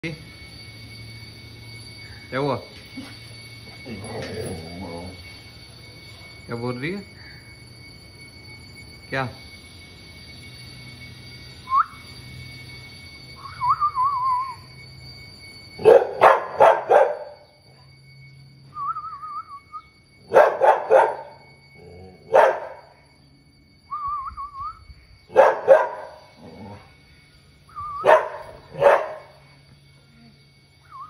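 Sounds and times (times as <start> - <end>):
dog whining: 3.0 - 5.2
dog barking: 15.8 - 17.3, 20.3 - 21.3, 22.3 - 22.8, 25.3 - 26.1, 28.0 - 29.3.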